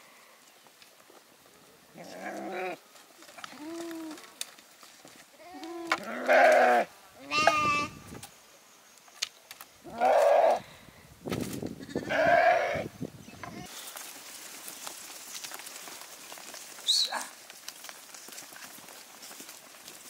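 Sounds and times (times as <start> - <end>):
animals bleating: 2.0 - 2.8, 5.4 - 8.0, 9.9 - 10.6, 11.8 - 12.9.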